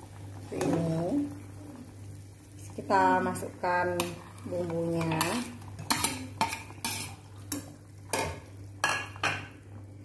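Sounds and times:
spoon stirring broth: 3.8s - 9.6s.

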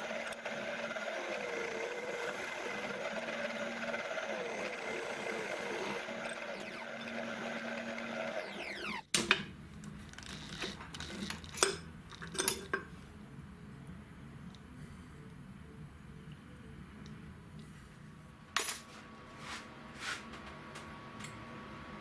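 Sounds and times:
electric drill boring through steel: 0.0s - 9.0s.

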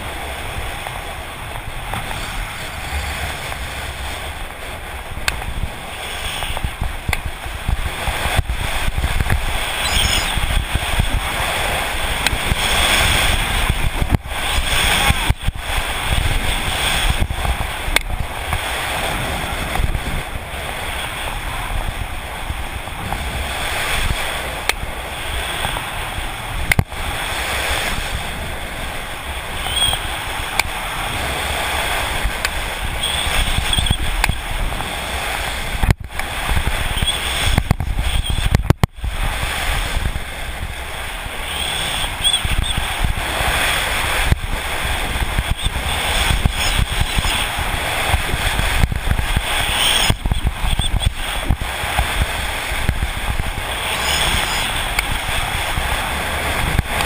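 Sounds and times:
low buffeting rumble: 0.0s - 27.3s, 28.0s - 57.0s
wind rushing over microphone: 0.0s - 57.0s
skis scraping on hard snow: 29.6s - 57.0s.

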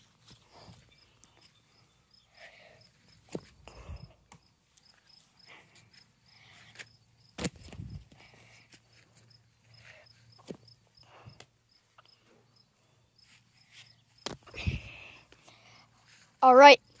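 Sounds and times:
footsteps on grass: 0.0s - 2.0s.

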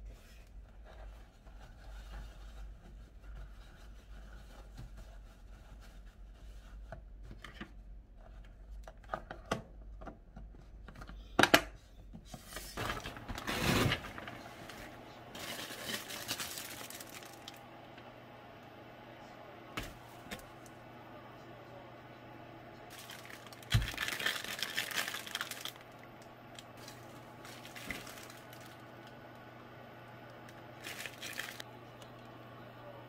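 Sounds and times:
insulated bag rustling and crinkling: 12.8s - 17.6s, 22.9s - 28.8s, 30.8s - 31.6s.

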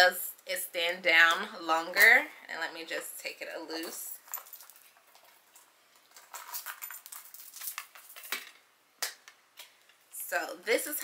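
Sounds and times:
metal chain clinking: 4.2s - 8.3s.

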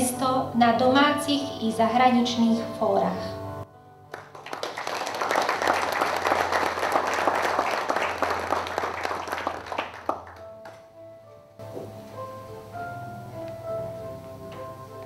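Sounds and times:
audience applauding: 4.1s - 10.8s.

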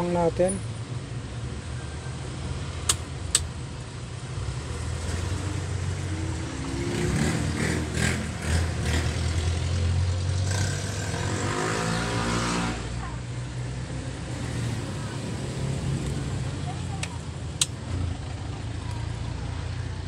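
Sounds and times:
vehicle engine revving: 2.6s - 20.0s
sharp clicks: 2.8s - 3.5s, 17.0s - 17.8s.

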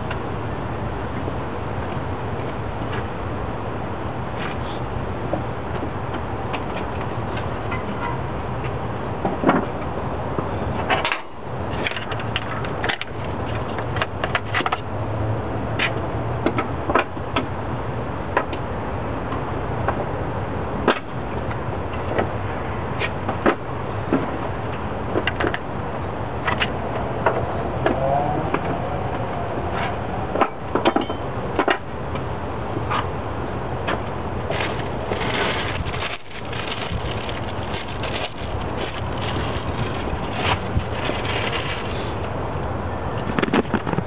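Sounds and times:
low background rumble: 19.1s - 44.0s.

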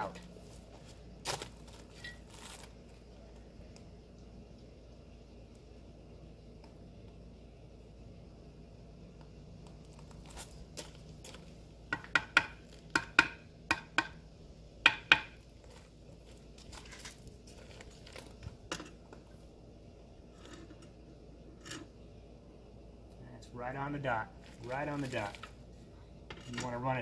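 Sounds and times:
trowel tapping concrete block: 11.9s - 14.2s.

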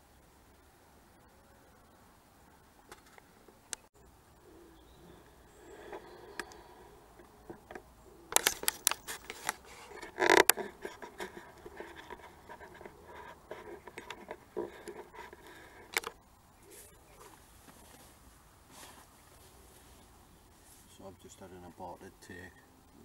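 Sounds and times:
quiet rustling: 2.5s - 23.0s
camera handling scratching and clicks: 8.3s - 16.2s.

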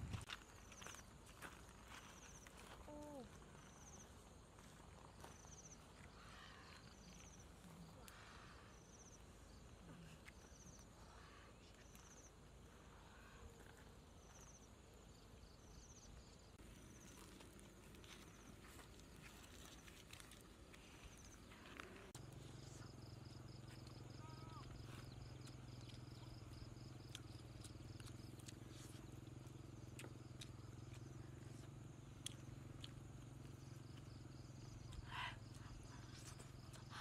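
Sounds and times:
insect chirping trills: 0.2s - 37.0s.

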